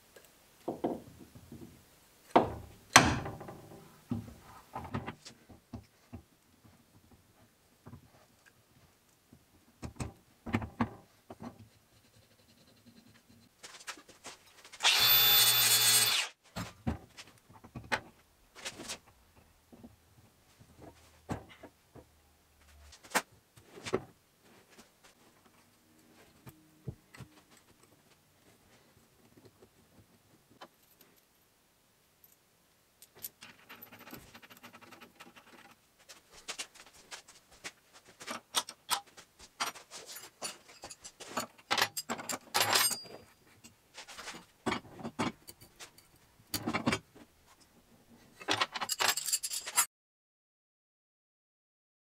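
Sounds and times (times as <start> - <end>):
metal tools clinking: 39.6 - 43.4, 48.4 - 49.9.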